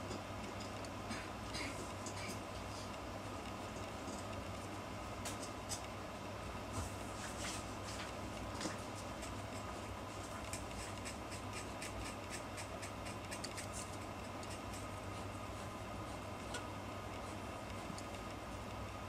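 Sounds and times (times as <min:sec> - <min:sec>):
steady low hum: 0:00.0 - 0:19.0
pen nib scratching on paper: 0:09.6 - 0:15.3.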